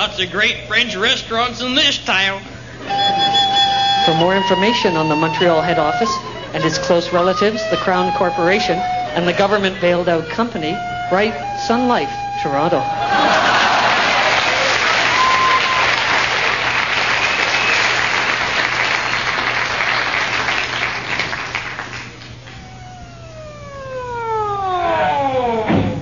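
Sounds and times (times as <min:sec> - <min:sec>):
police siren winding down: 0:02.8 - 0:16.6, 0:22.3 - 0:26.0
audience applause: 0:13.0 - 0:22.6.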